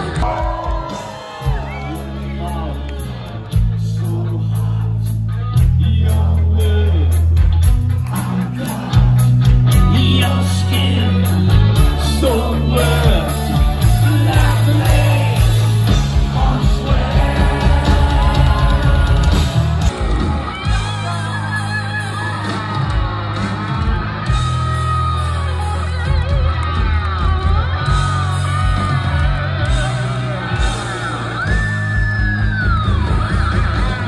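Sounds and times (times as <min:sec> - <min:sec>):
crowd yelling: 0:00.0 - 0:34.0
live rock band: 0:00.0 - 0:34.0
man singing: 0:02.0 - 0:07.3, 0:08.0 - 0:19.9.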